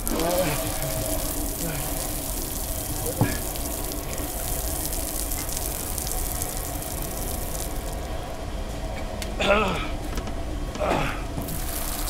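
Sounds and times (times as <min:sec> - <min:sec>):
shower water splashing on concrete: 0:00.0 - 0:08.2, 0:11.4 - 0:12.0.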